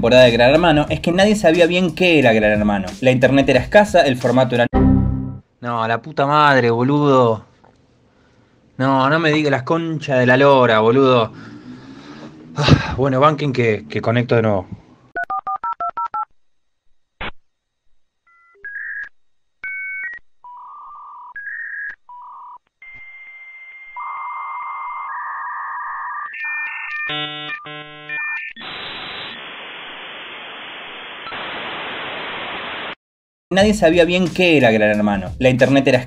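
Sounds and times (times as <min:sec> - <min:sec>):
modem beeping and screeching tones: 0:19.7 - 0:31.8
loud static hiss: 0:28.6 - 0:33.0.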